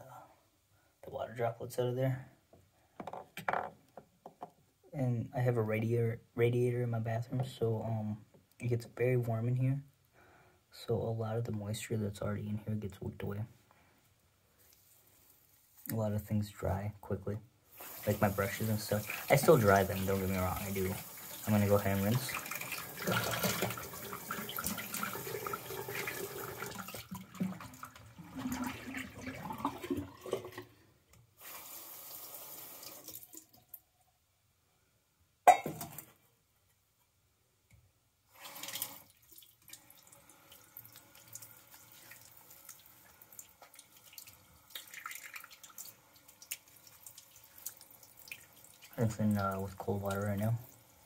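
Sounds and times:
water splashing: 40.8s - 49.0s.

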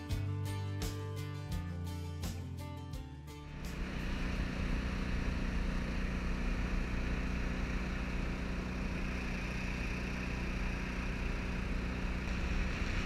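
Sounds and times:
boat motor running: 3.4s - 13.0s.

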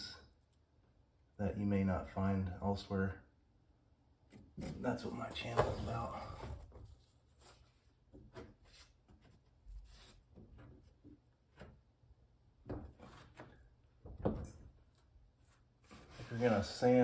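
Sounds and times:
wooden stick scraping filler: 15.4s - 16.8s.

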